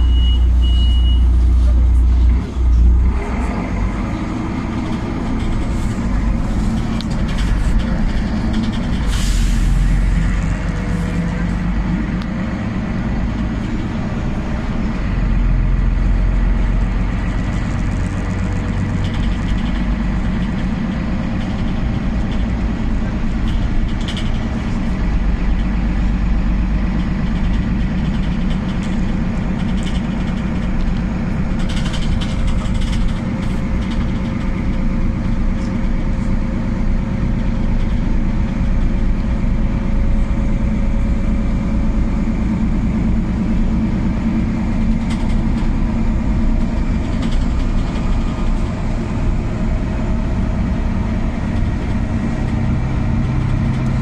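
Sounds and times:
bus engine running: 0:00.0 - 0:54.0
road noise rumble: 0:00.0 - 0:54.0.

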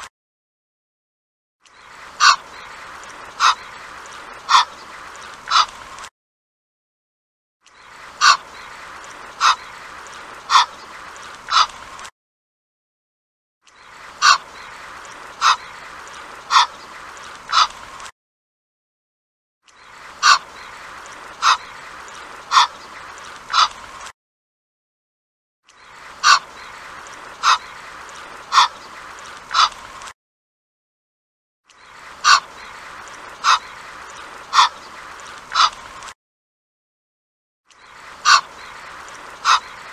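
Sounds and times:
goose calling: 0:02.2 - 0:02.6, 0:03.4 - 0:03.8, 0:04.5 - 0:04.8, 0:05.5 - 0:05.7, 0:08.2 - 0:08.7, 0:09.4 - 0:09.8, 0:10.5 - 0:10.8, 0:11.5 - 0:11.8, 0:14.2 - 0:15.9, 0:16.5 - 0:16.9, 0:17.5 - 0:17.8, 0:20.2 - 0:20.8, 0:21.4 - 0:21.8, 0:22.4 - 0:22.9, 0:23.5 - 0:23.8, 0:26.2 - 0:28.9, 0:29.5 - 0:29.8, 0:32.2 - 0:33.9, 0:34.5 - 0:34.9, 0:35.5 - 0:35.8, 0:38.2 - 0:39.9.

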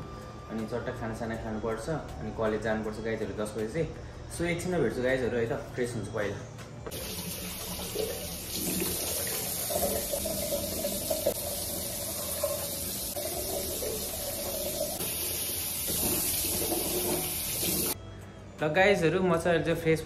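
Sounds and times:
tap running into a sink: 0:06.9 - 0:18.0.

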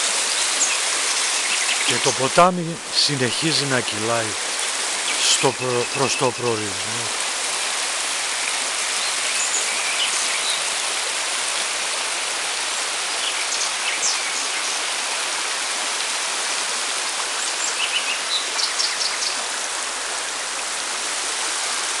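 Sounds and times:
stream rushing over stones: 0:00.0 - 0:22.0
birds chirping: 0:00.5 - 0:07.2.

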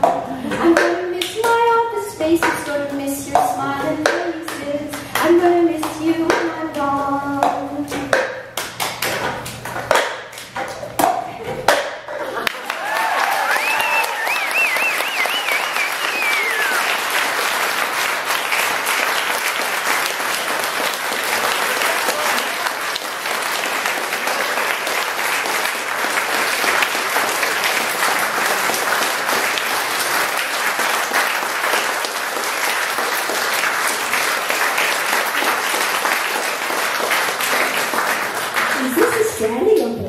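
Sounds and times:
crowd applauding: 0:12.2 - 0:39.5.

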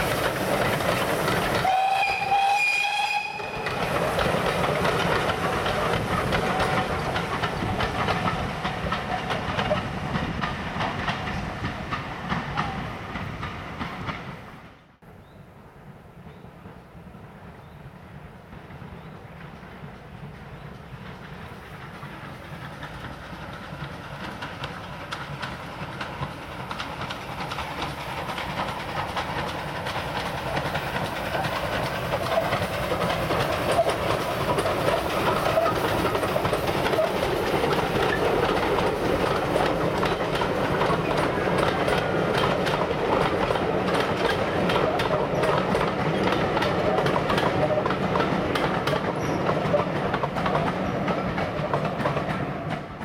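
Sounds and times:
steam locomotive passing: 0:00.0 - 0:53.0
wheels clattering over rails: 0:21.0 - 0:53.0.

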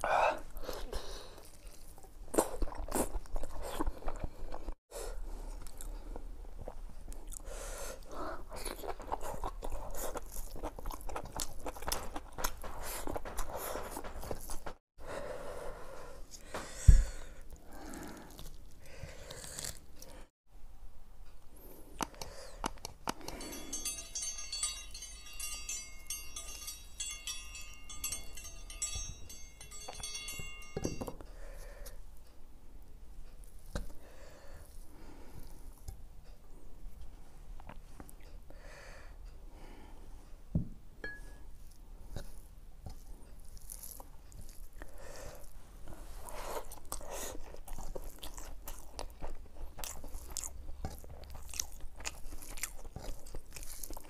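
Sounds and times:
chewing and crunching: 0:00.0 - 0:04.8, 0:05.4 - 0:14.8, 0:17.4 - 0:20.3, 0:41.6 - 0:54.0
tinkling chime jingle: 0:23.2 - 0:31.2.

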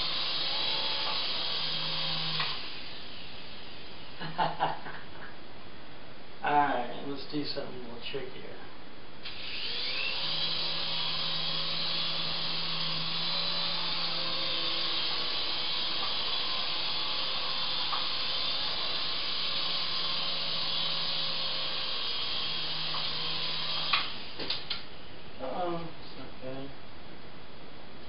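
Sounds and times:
toy helicopter rotor whirring: 0:00.0 - 0:03.4, 0:09.3 - 0:24.4.

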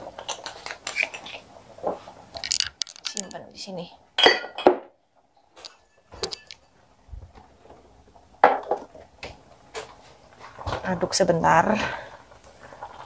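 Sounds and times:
utensils clinking on a countertop: 0:02.4 - 0:03.5, 0:04.2 - 0:04.9, 0:05.6 - 0:06.8.

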